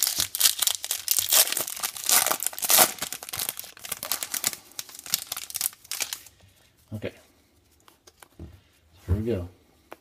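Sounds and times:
foil pack tearing and crinkling: 0.0s - 6.2s.

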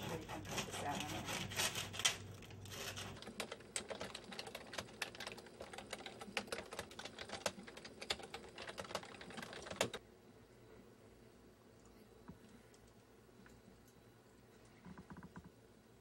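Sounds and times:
typing on computer keyboard: 2.8s - 10.0s.

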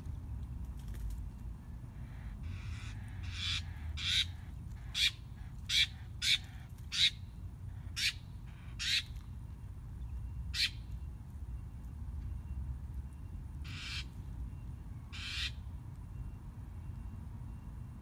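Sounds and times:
bird harsh calls: 2.0s - 9.2s, 10.6s - 10.8s, 13.7s - 14.1s, 15.1s - 15.6s.

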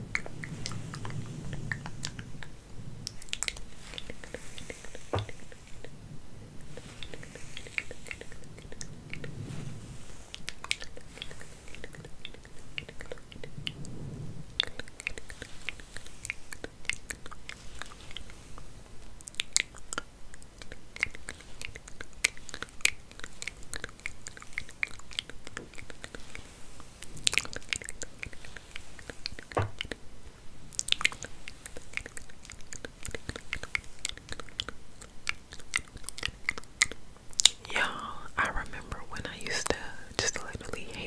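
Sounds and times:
soft low rustles: 0.0s - 36.7s
hair combing crackles: 3.1s - 5.9s, 6.6s - 13.4s.

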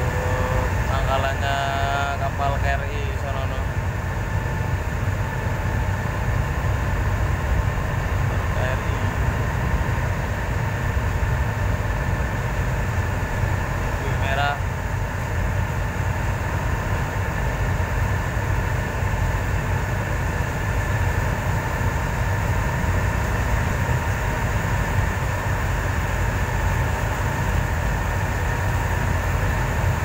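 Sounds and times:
faint whine: 0.0s - 15.3s
boat engine droning: 0.0s - 30.0s.

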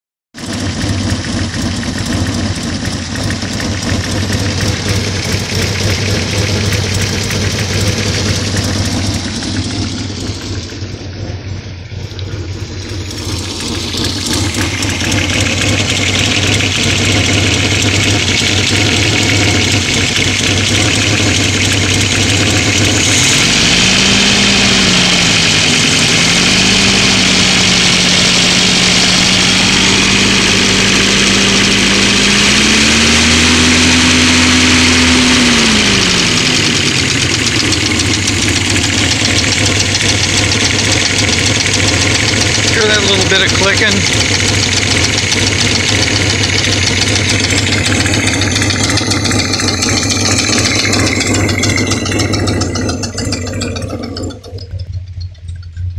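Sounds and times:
car engine idling: 0.3s - 55.9s
engine revving steadily: 0.3s - 55.9s
fast light engine clicking: 0.4s - 10.8s, 12.0s - 55.9s.

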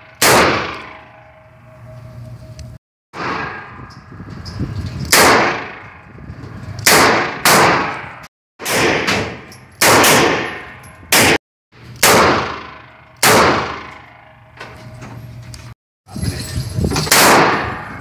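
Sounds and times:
revolver shots with ringing echo: 0.0s - 1.4s, 5.1s - 6.0s, 6.9s - 11.4s, 12.0s - 14.4s, 17.1s - 18.0s.

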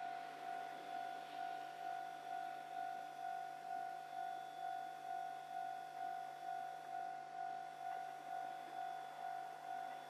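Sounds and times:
level-crossing warning bell ringing: 0.0s - 10.0s.

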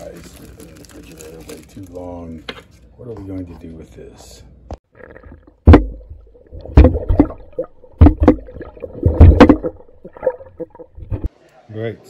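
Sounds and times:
underwater rumble and gurgling: 5.2s - 11.3s
fish thumping against camera: 5.6s - 11.3s.

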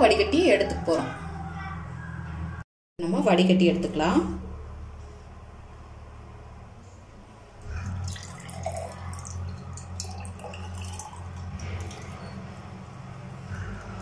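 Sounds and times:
syrup dripping and splashing: 7.9s - 12.2s.

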